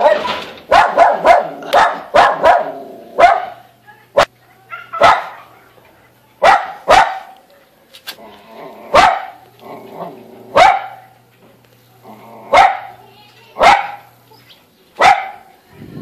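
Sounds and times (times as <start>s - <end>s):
dog barking: 0.0s - 3.6s, 4.2s - 5.7s, 6.4s - 7.4s, 8.9s - 9.4s, 10.5s - 11.2s, 12.5s - 13.0s, 13.6s - 14.1s, 15.0s - 15.5s.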